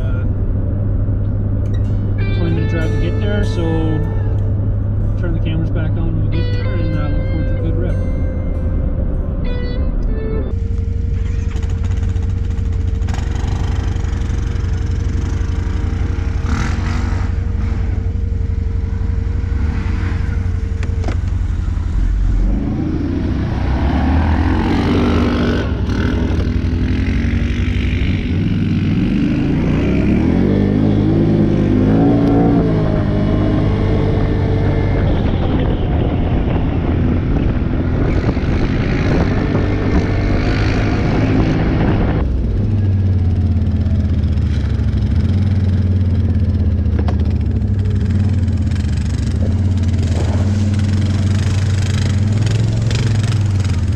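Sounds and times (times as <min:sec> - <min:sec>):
atv engine revving: 0:10.7 - 0:53.9.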